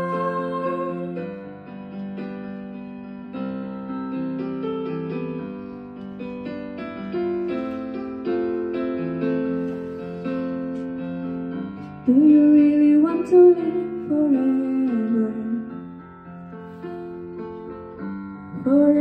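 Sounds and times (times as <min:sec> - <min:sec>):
woman singing into microphone: 0:00.0 - 0:01.1, 0:12.1 - 0:15.6, 0:18.5 - 0:19.0.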